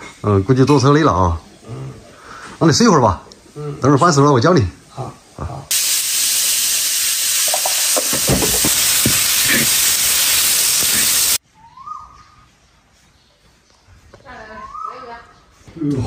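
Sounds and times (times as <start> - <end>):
stir-fry sizzling in a wok: 5.7 - 11.4.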